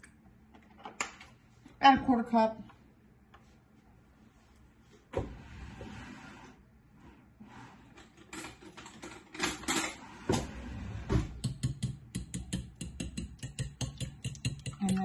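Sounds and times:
fork whisking eggs in a pan: 0:12.2 - 0:15.0.

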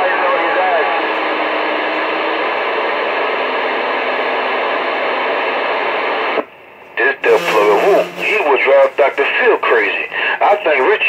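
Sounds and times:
radio static hiss: 0:04.9 - 0:11.0.

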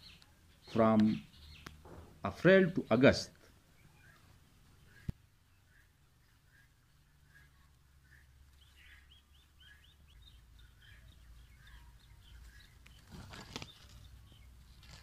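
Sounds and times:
bird chirping: 0:00.0 - 0:15.0
rising bird chirps: 0:03.7 - 0:14.8.

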